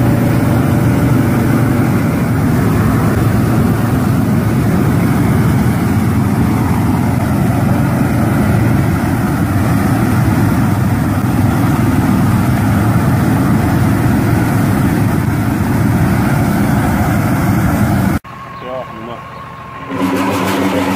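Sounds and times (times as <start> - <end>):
gas burners rushing: 0.0 - 20.9
tractor engine running: 0.0 - 20.9.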